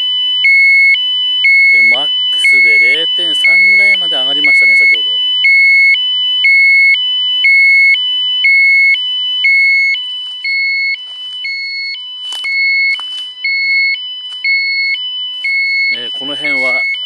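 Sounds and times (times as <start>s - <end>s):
two-tone alarm beep: 0.0s - 17.0s
footsteps in dry leaves: 10.0s - 14.6s, 15.3s - 16.8s.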